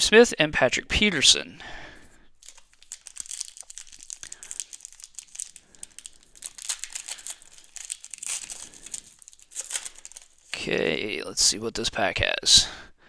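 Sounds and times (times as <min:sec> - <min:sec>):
plastic wrapper crinkling and tearing: 0:02.4 - 0:10.7.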